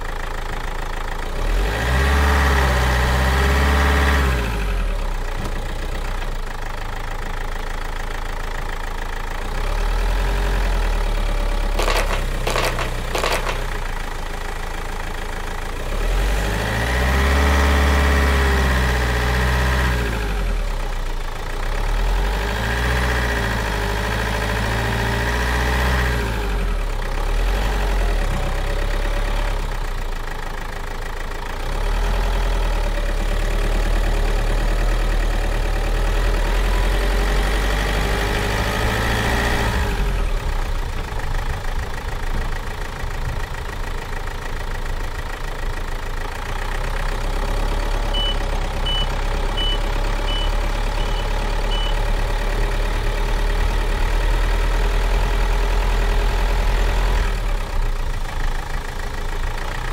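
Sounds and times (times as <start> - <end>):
heavy vehicle engine running: 0.0 - 59.9
short high beeps: 48.2 - 52.0.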